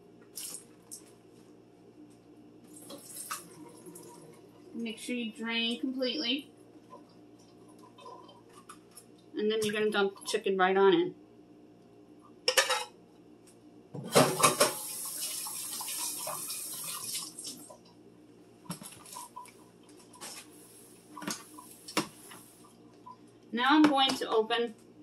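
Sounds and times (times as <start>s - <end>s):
water running from tap: 2.7s - 4.6s, 14.1s - 17.9s.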